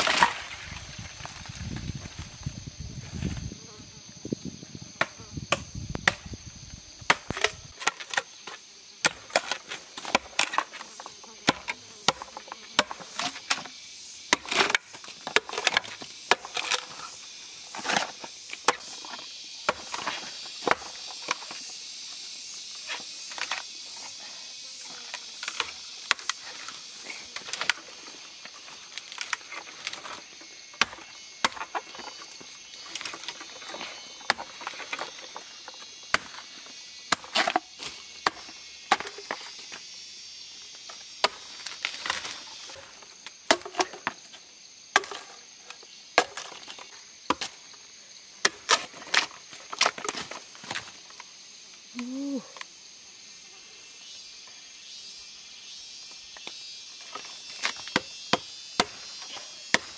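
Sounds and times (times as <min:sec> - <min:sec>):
machete chopping bamboo: 0:00.0 - 0:00.8, 0:05.0 - 0:06.4, 0:07.0 - 0:17.1, 0:17.7 - 0:21.6, 0:25.4 - 0:26.7, 0:30.8 - 0:36.5, 0:37.1 - 0:39.5, 0:40.9 - 0:44.3, 0:44.9 - 0:47.6, 0:48.4 - 0:50.9, 0:57.1 - 0:59.9
high background hiss: 0:09.6 - 0:43.5, 0:44.1 - 0:59.9.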